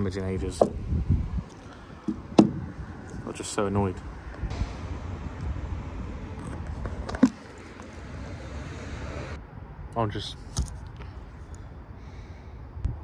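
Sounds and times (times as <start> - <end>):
low vehicle rumble: 0.0 - 13.0
sharp knock: 2.1 - 2.6
faint hiss: 3.1 - 9.4.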